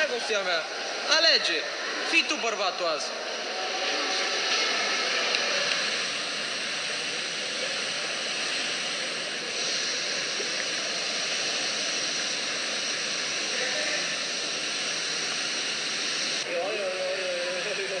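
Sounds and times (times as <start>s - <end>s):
whirlpool tub bubbling: 0.0s - 18.0s.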